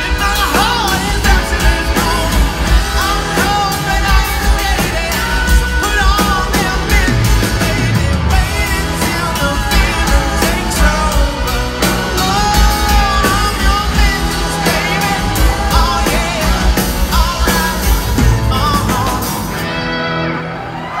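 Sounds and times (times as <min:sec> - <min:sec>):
male lead vocal: 0:00.0 - 0:19.8
rock band playing live: 0:00.0 - 0:21.0.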